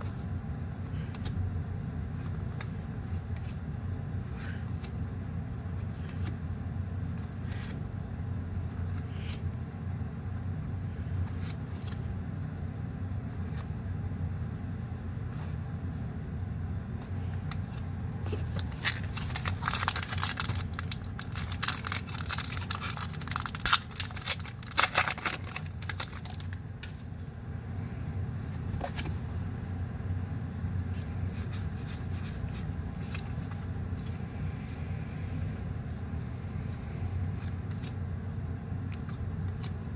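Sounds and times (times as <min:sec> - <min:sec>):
steady low hum: 0:00.0 - 0:39.9
foil wrapper crackling and crinkling: 0:18.3 - 0:26.9.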